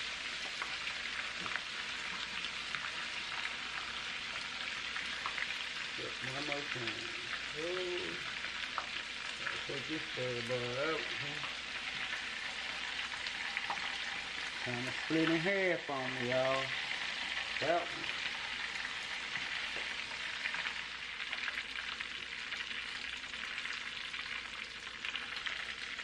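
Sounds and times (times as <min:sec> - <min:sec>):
fish deep-frying in hot oil: 0:00.0 - 0:26.0
person's voice: 0:06.0 - 0:08.3, 0:09.4 - 0:11.5, 0:14.6 - 0:16.8, 0:17.6 - 0:18.1.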